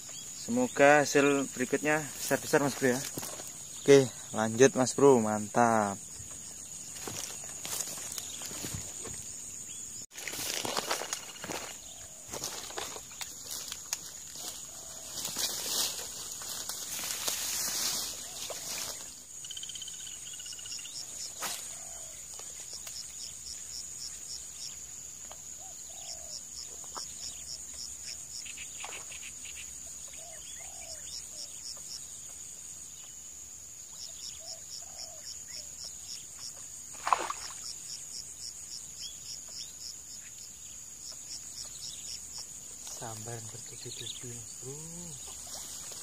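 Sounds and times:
cricket chirps: 0.0 - 46.0
high insect drone: 0.0 - 46.0
fish splash on water: 36.9 - 37.7.

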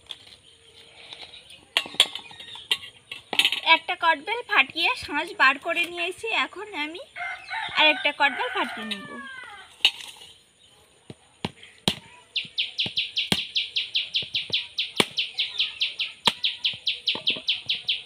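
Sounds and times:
bird calling rapid high notes: 12.4 - 18.0.

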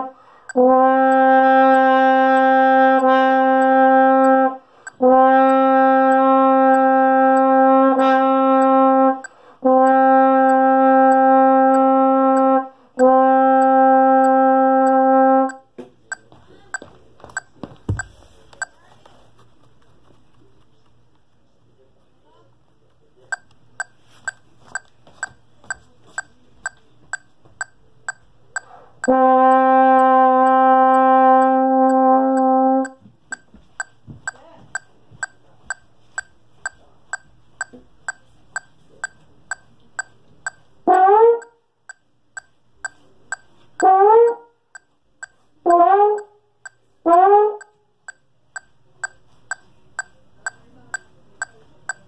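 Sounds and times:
brass instrument notes: 0.0 - 15.6, 29.0 - 32.9, 40.8 - 41.6, 43.8 - 44.5, 45.6 - 46.4, 47.0 - 47.7
metronome clicking: 0.0 - 16.3, 23.3 - 52.0.

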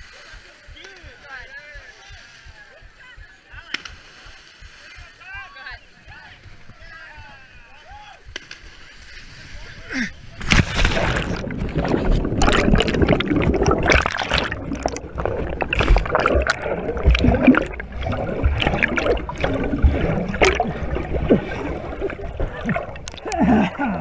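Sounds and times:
muddy water sloshing and splashing: 10.4 - 24.0.

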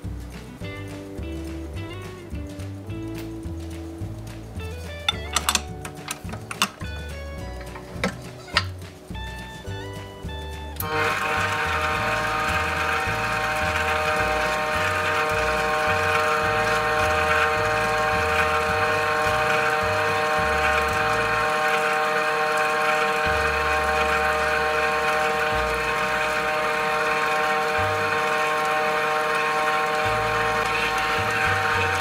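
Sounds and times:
stand mixer motor whine: 10.8 - 32.0.

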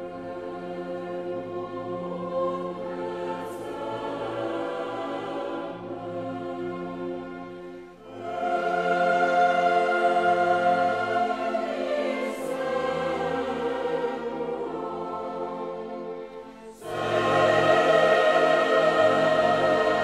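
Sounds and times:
choral and orchestral music: 0.0 - 20.0.

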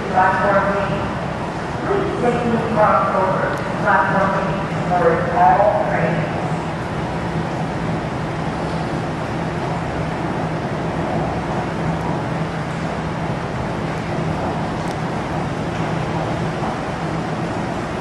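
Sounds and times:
constant low hum: 0.0 - 18.0
rain: 8.5 - 18.0.

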